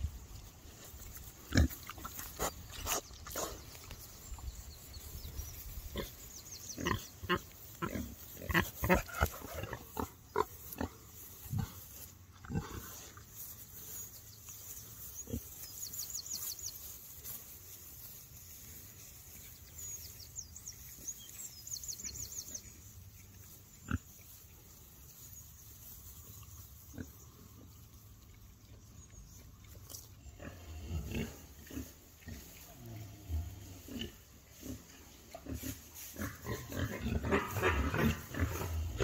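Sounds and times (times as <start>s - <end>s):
pigs grunting: 1.3s - 3.8s, 5.9s - 13.2s, 30.3s - 39.0s.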